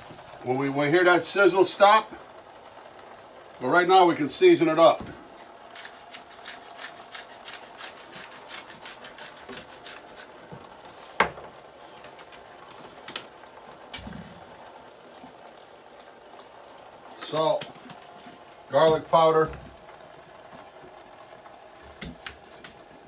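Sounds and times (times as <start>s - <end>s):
potatoes sizzling in pot: 0.0s - 21.8s.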